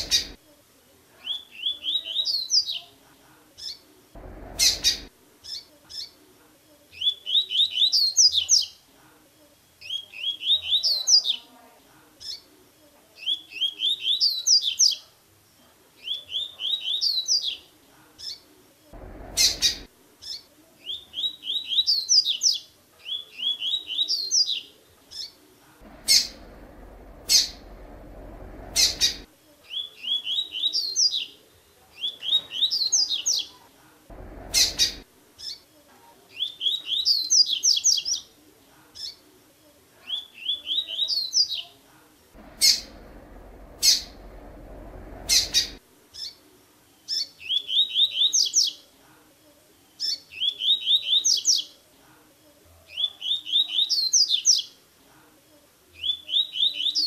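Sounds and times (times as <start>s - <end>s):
bird singing: 0.0s - 0.4s, 3.6s - 6.2s, 19.0s - 31.3s, 34.1s - 35.6s, 42.4s - 46.3s
noisy rushes: 4.2s - 5.1s, 19.0s - 19.9s, 25.8s - 29.3s, 34.1s - 35.1s, 42.4s - 45.8s.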